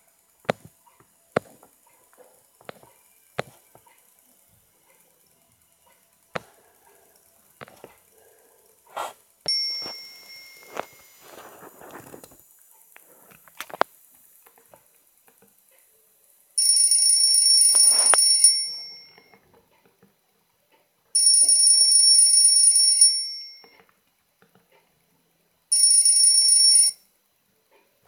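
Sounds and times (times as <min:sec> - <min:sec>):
electronic alarm ringing: 0:09.5 - 0:11.4, 0:16.6 - 0:19.4, 0:21.2 - 0:23.8, 0:25.7 - 0:27.1.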